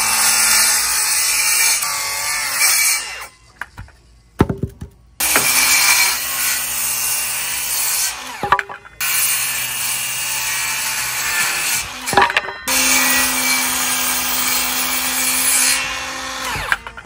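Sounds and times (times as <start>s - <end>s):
knocks: 3.7s - 5.5s
circular saw cutting wood: 5.2s - 17.0s.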